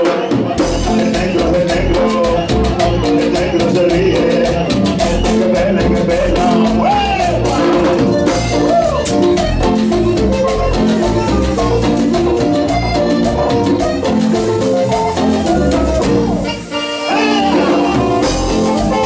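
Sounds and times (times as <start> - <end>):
live latin dance band: 0.0 - 19.0.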